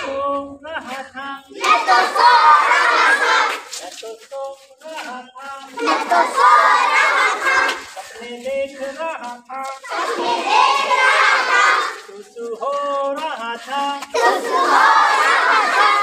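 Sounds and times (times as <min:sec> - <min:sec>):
single voice singing: 0:00.0 - 0:16.0
children chanting: 0:01.5 - 0:03.7, 0:05.7 - 0:08.3, 0:09.7 - 0:12.2, 0:14.0 - 0:16.0.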